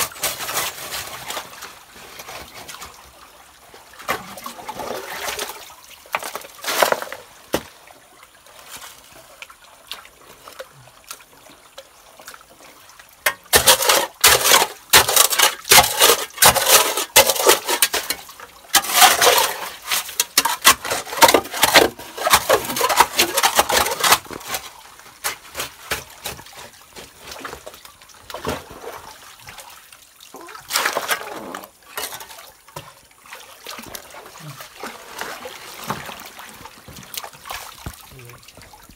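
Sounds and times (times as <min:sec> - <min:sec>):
water splashing: 0:00.0 - 0:38.9
hoe scraping gravel: 0:06.6 - 0:07.2, 0:13.6 - 0:18.2, 0:18.8 - 0:24.7.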